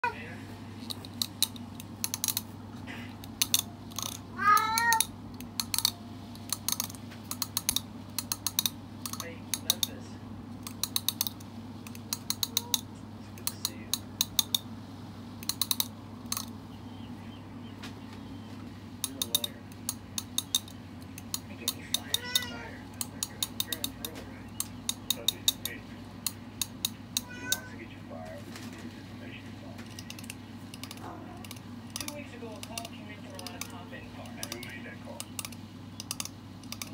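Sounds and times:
sharp clicks: 3.2s - 10.0s, 10.6s - 14.7s, 15.4s - 16.6s, 19.0s - 27.7s, 29.8s - 36.9s
cat meowing: 4.4s - 5.1s, 22.0s - 22.8s, 27.2s - 27.8s.

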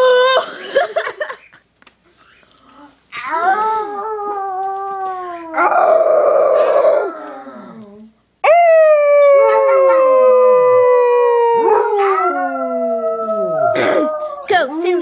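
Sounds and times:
dogs howling: 3.2s - 14.5s.

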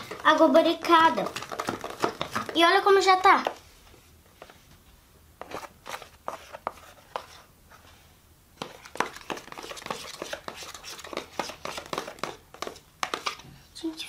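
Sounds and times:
pencil knocking plastic tub: 0.0s - 3.6s, 8.6s - 13.4s.

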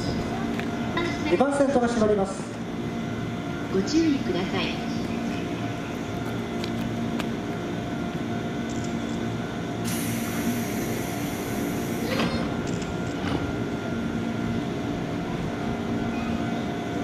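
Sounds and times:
train equipment humming: 0.0s - 1.2s, 2.1s - 17.0s
compressed air hissing: 9.8s - 12.3s.

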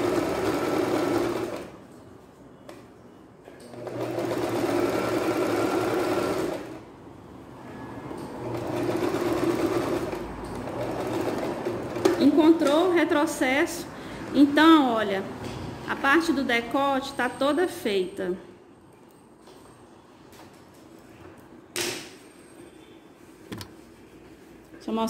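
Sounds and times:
electric sewing machine stitching: 0.0s - 1.7s, 3.7s - 6.8s, 8.4s - 12.4s.

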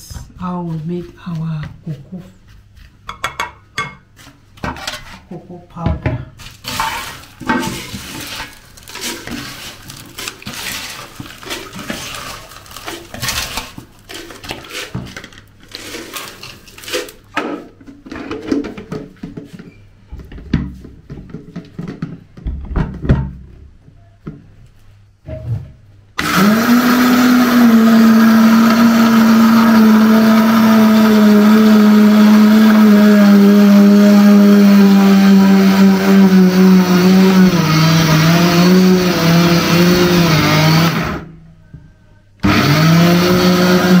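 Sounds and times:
spatula scraping bowls: 6.5s - 19.8s
blender motor grinding: 26.2s - 41.3s, 42.4s - 44.0s.

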